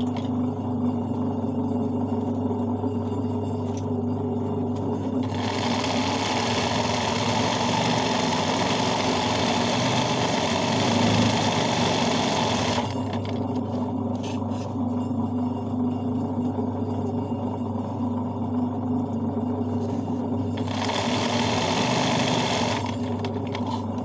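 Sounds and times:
sewing machine stitching: 0:05.2 - 0:13.4, 0:20.6 - 0:23.9.

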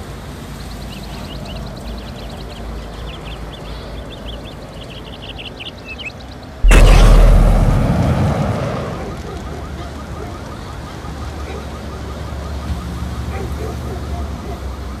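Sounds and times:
steady rushing noise: 0:06.6 - 0:09.3
explosion blast with deep rumble: 0:06.6 - 0:09.4.

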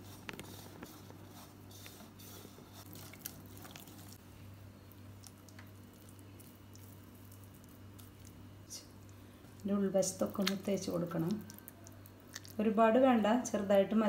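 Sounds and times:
low steady hum: 0:00.0 - 0:14.0
hand squishing wet paste: 0:05.1 - 0:12.6.

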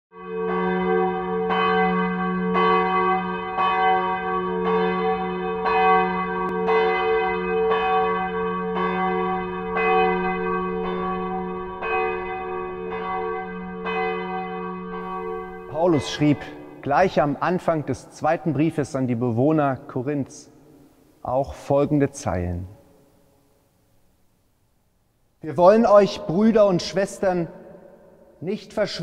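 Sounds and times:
church bell tolling: 0:00.1 - 0:19.8.

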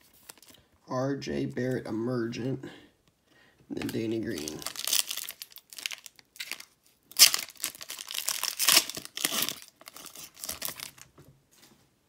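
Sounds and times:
card pack wrapper crinkling and tearing: 0:00.0 - 0:00.6, 0:03.8 - 0:11.1.

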